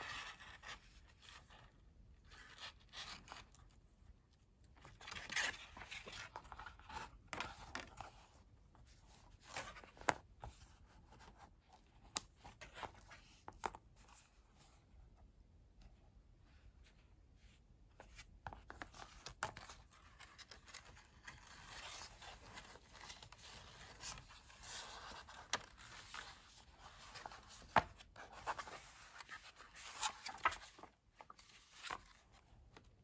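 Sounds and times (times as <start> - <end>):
paper rustling: 22.4 - 32.4.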